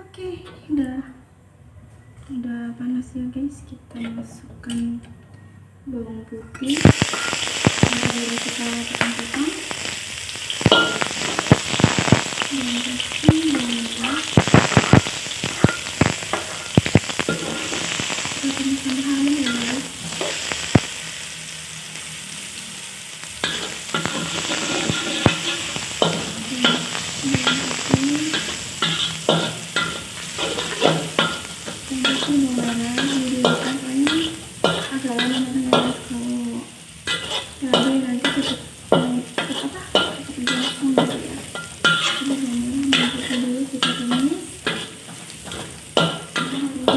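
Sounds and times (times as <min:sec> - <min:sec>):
garlic sizzling in hot oil: 0:06.7 - 0:46.9
metal spatula scraping a wok: 0:23.4 - 0:36.1, 0:37.0 - 0:46.9.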